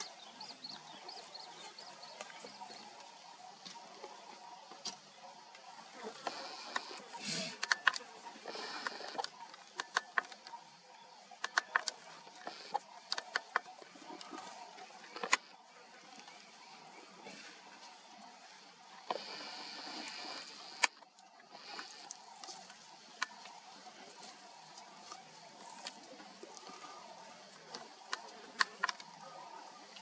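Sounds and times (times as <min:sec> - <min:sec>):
sharp clicks and snaps: 0:06.2 - 0:10.6, 0:11.4 - 0:14.3.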